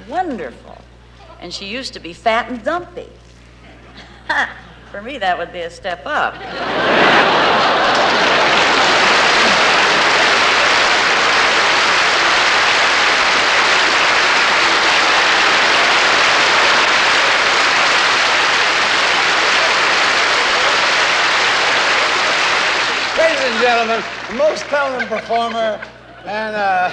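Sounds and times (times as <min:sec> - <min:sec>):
large audience applauding: 0:06.5 - 0:25.8.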